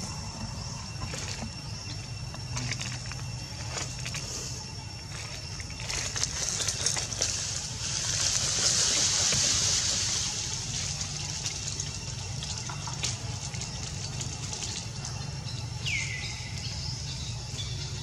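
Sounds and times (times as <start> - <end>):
steady high hiss: 0.0 - 14.1.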